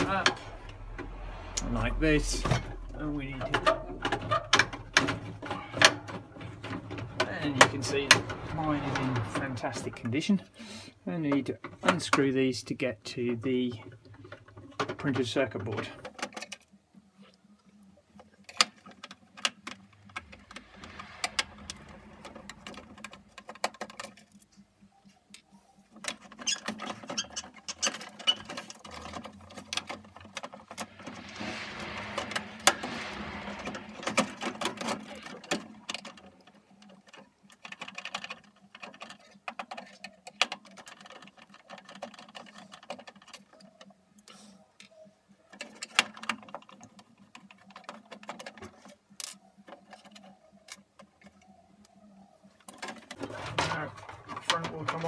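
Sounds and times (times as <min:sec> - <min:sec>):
plastic panel rattling and scraping: 0:03.4 - 0:10.2, 0:13.8 - 0:16.6, 0:26.0 - 0:31.0, 0:33.6 - 0:43.9, 0:52.5 - 0:55.0.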